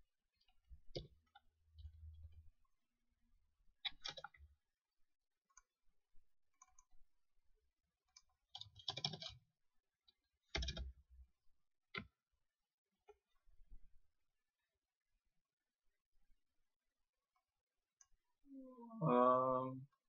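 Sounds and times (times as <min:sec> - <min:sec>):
computer keyboard clicking: 0:08.5 - 0:09.4, 0:10.5 - 0:10.9.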